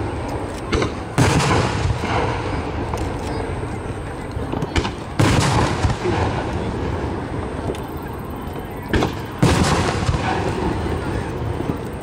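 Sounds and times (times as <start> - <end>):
small firework bangs: 0.6 - 7.9, 8.5 - 12.0
firework shells booming: 0.7 - 3.0, 4.5 - 7.8, 8.8 - 11.8.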